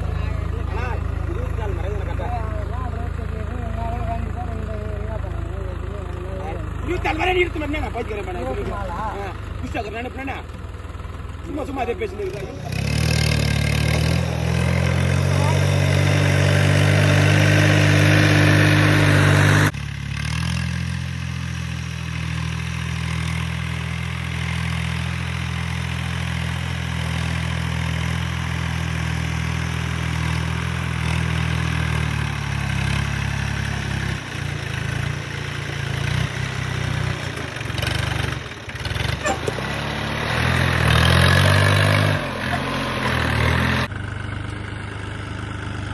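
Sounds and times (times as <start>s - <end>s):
tractor diesel engine under load: 0.0s - 45.9s.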